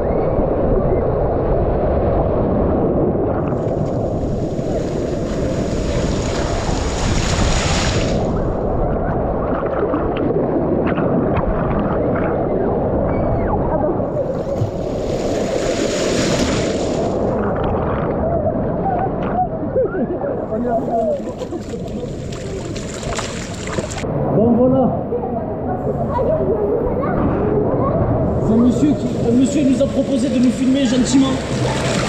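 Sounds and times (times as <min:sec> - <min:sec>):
water rushing and churning: 0:00.9 - 0:24.3, 0:25.5 - 0:32.0
water splashing: 0:03.4 - 0:12.5, 0:14.1 - 0:18.2, 0:20.5 - 0:24.1, 0:28.4 - 0:32.0.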